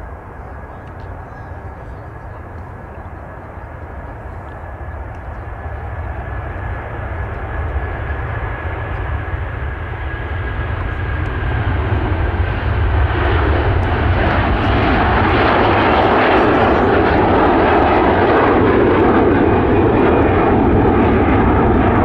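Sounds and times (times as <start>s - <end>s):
jet engines at take-off power: 0.0s - 22.0s.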